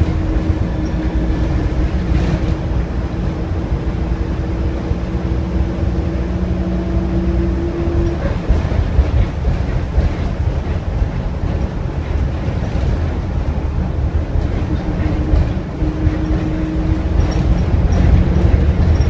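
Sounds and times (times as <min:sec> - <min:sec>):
bus engine and road rumble: 0:00.0 - 0:19.0.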